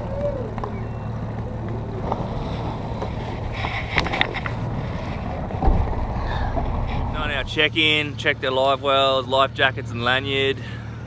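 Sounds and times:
outboard motor idling: 0:00.0 - 0:11.0
sharp knocks: 0:05.5 - 0:07.2.

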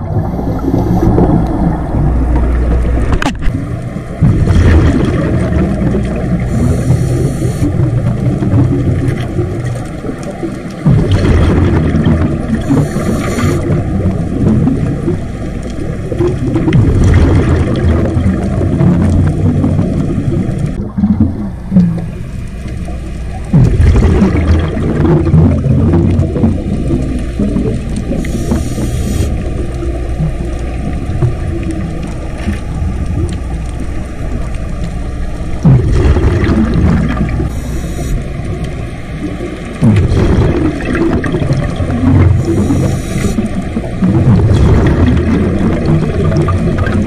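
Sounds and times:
exhaled bubbles rumbling: 0:00.0 - 0:47.0
diver breathing through regulator: 0:06.5 - 0:07.7, 0:12.7 - 0:13.7, 0:28.2 - 0:29.4, 0:37.5 - 0:38.2, 0:42.4 - 0:43.4.

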